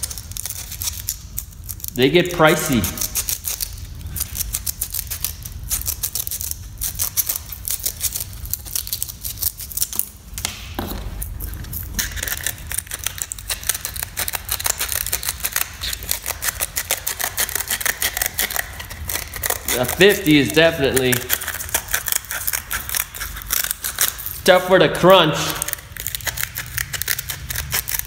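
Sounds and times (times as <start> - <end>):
scissors cutting sandpaper: 11.1 - 28.0.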